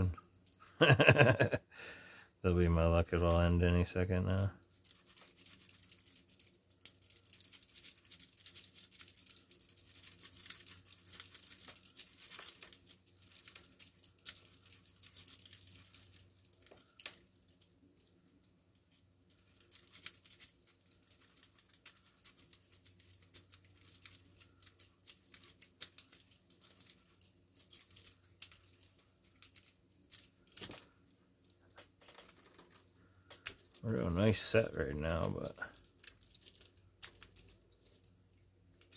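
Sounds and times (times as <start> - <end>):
handcuffs jingling: 4.2 - 38.9.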